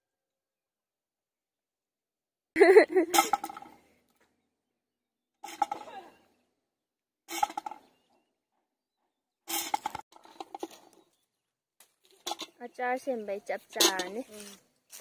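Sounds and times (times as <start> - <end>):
person's voice: 12.6 - 14.5.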